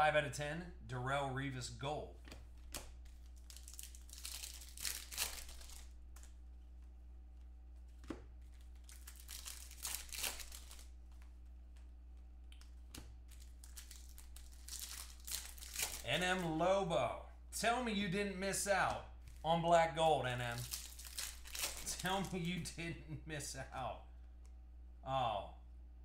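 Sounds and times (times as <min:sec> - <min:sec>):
steady low hum: 0:00.0 - 0:26.0
foil wrappers crinkling and tearing: 0:03.0 - 0:06.4, 0:08.4 - 0:11.2, 0:13.2 - 0:16.5, 0:20.5 - 0:22.5.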